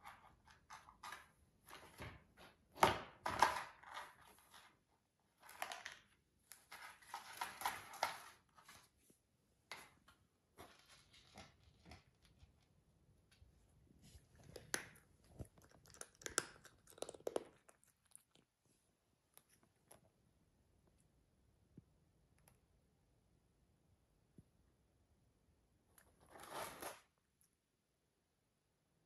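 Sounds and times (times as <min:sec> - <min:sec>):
cat paws scraping cardboard: 0:26.2 - 0:27.1.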